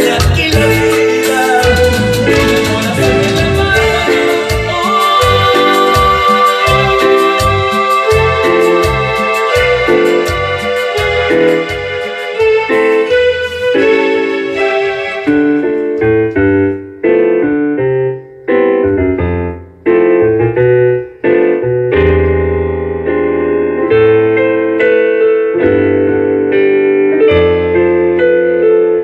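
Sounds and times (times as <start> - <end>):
electric piano melody: 0.0 - 29.0
bass notes: 0.2 - 8.4.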